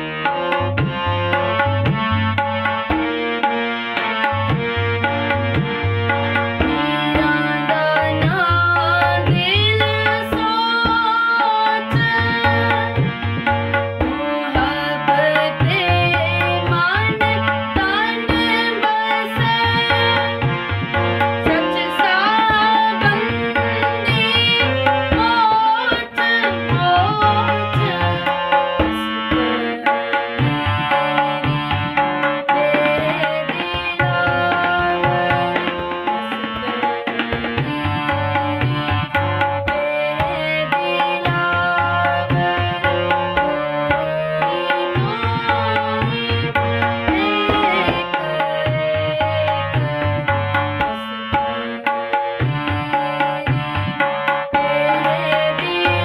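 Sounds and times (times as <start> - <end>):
harmonium melody: 0.0 - 56.0
girl singing: 6.6 - 13.1, 14.0 - 20.5, 21.4 - 36.9, 37.6 - 46.5, 47.1 - 51.0, 52.6 - 56.0.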